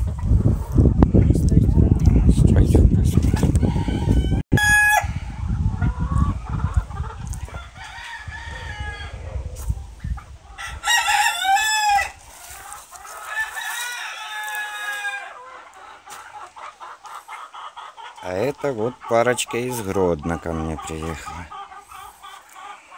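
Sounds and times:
chickens clucking: 0.0s - 22.9s
rooster crowing: 3.6s - 5.2s, 7.6s - 9.3s, 10.6s - 12.2s, 13.2s - 15.4s.

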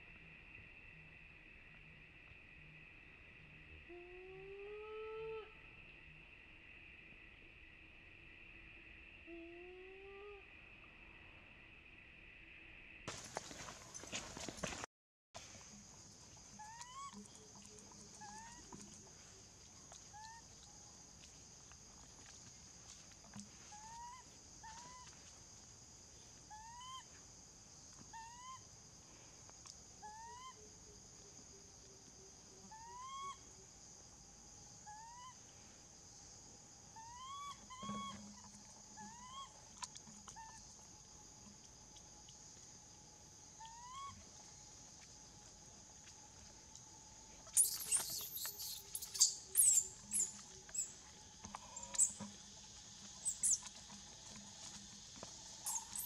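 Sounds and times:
baby monkey shrill screams: 47.6s - 50.9s, 55.6s - 56.0s
baby monkey squeaky calls: 47.6s - 50.9s, 53.2s - 53.7s, 55.6s - 56.0s.

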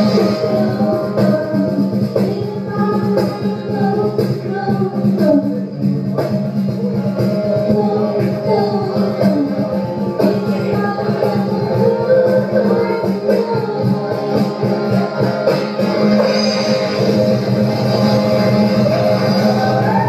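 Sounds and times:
live band playing pop song: 0.0s - 20.0s
steady drum beat: 0.0s - 20.0s.

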